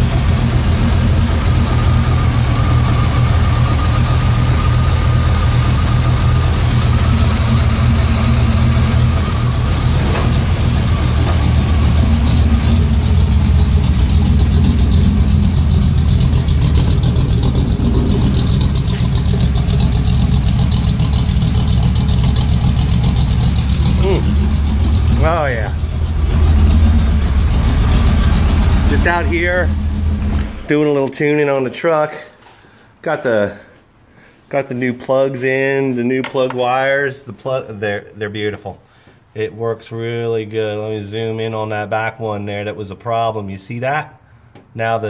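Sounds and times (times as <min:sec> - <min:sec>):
car engine idling: 0:00.0 - 0:30.9.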